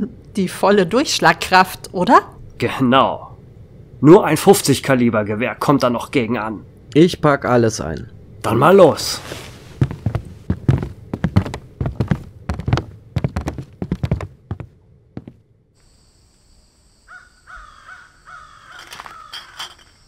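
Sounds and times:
high-pitched night hiss: 0:15.8 - 0:20.0
bird calling: 0:17.1 - 0:19.6.

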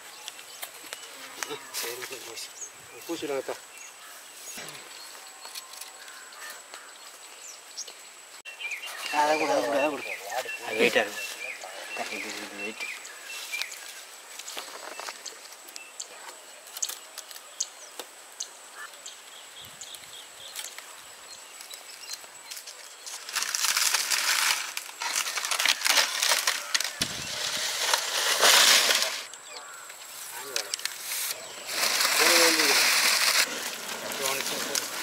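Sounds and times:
rustling and crackling: 0:20.5 - 0:35.0.

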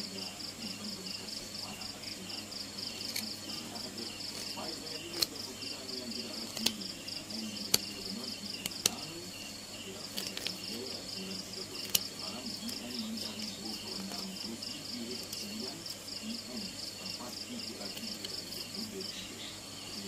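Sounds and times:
cricket trilling: 0:00.0 - 0:20.0
sharp clicks: 0:04.2 - 0:05.5, 0:06.2 - 0:06.9, 0:07.6 - 0:09.1, 0:11.7 - 0:14.2.

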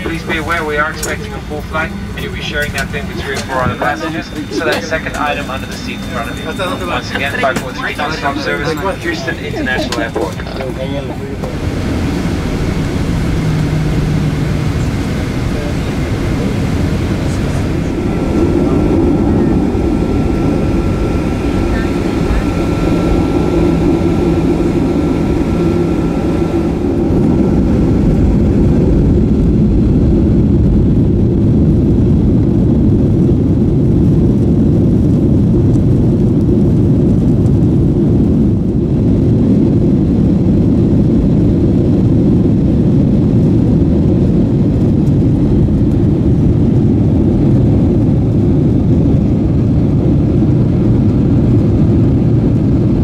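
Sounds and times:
jet engines spooling up: 0:00.0 - 0:32.1
jet engine hum with whine: 0:00.0 - 0:53.0.

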